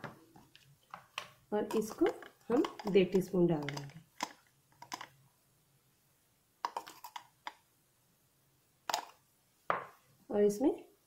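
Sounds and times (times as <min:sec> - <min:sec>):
spoon clicking on tin: 0:01.7 - 0:05.1.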